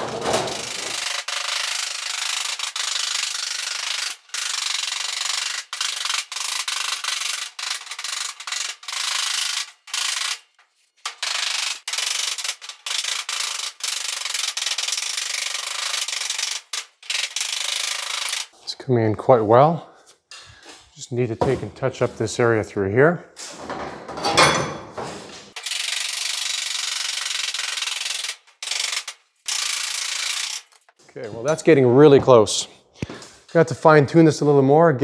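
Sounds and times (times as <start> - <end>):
power shears cutting sheet metal: 0.0 - 18.5.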